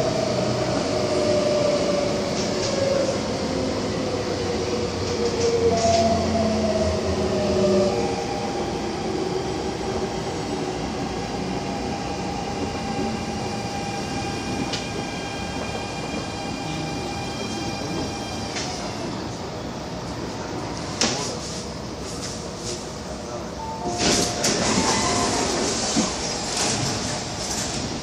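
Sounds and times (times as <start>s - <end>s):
train rail and wheel rumble: 0.0s - 28.0s.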